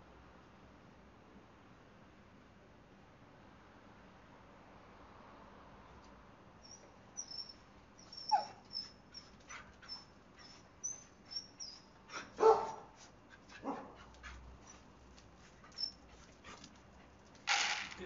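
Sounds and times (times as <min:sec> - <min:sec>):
dog whining: 0:06.6 - 0:12.8, 0:15.6 - 0:16.2
dog barking: 0:12.1 - 0:13.0, 0:13.6 - 0:14.1.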